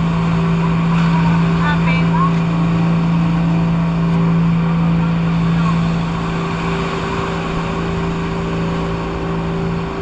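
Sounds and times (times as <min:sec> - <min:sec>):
boat motor droning: 0:00.0 - 0:10.0.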